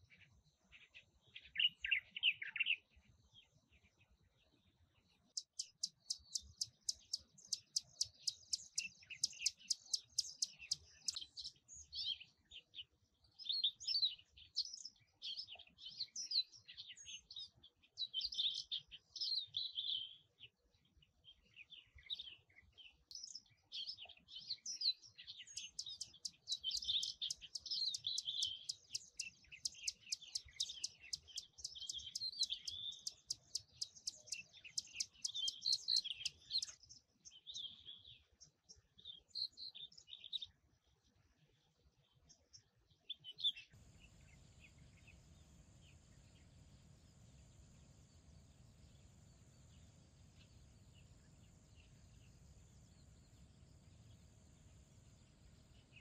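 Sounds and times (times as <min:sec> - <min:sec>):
bird calling with ticking notes: 0:05.3 - 0:12.1, 0:23.1 - 0:37.9.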